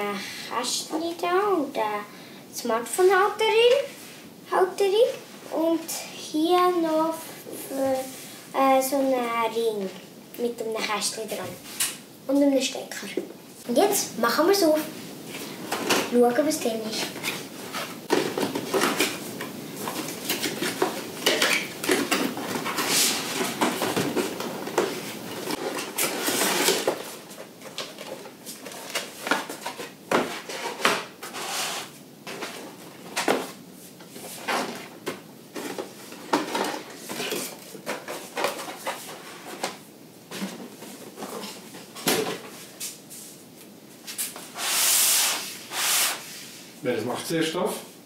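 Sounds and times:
cardboard scraping and rustling: 16.9s - 42.9s.

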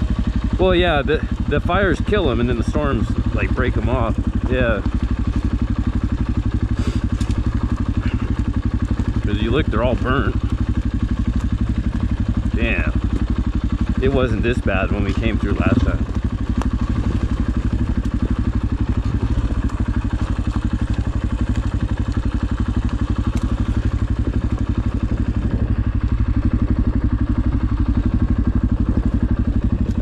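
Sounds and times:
dirt bike engine running: 0.0s - 30.0s.

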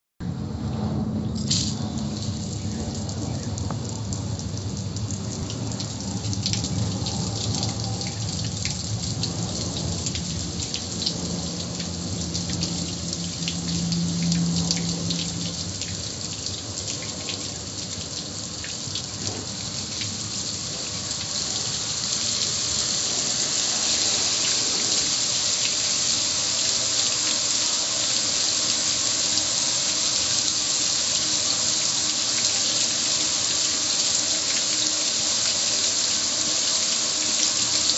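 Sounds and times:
drip ticks: 1.4s - 21.3s
water spray splashing on metal: 1.4s - 37.9s.

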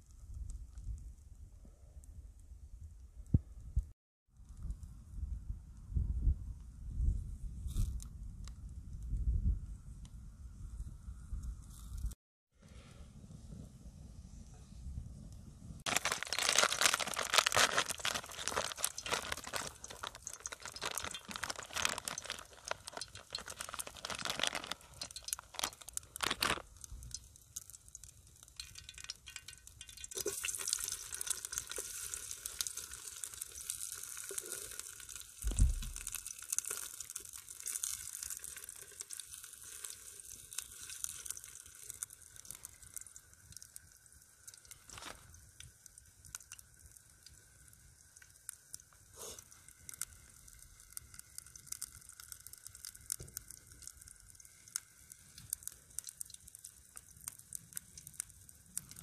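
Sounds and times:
campfire crackling: 15.3s - 59.0s
sausages sizzling in a pan: 15.9s - 59.0s
low thump: 35.4s - 36.1s.

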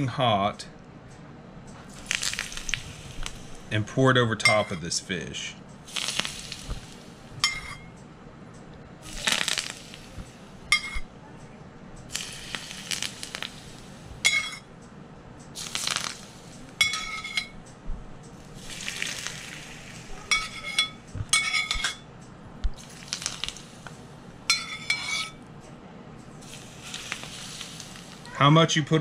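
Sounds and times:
hot oil sizzling: 1.9s - 3.8s, 5.8s - 7.8s, 9.0s - 11.0s, 12.1s - 14.6s, 15.6s - 17.6s, 18.3s - 21.9s, 22.8s - 25.4s, 26.4s - 28.4s
metal ladle scraping skillet: 16.8s - 17.6s, 18.6s - 22.0s, 24.5s - 25.4s.

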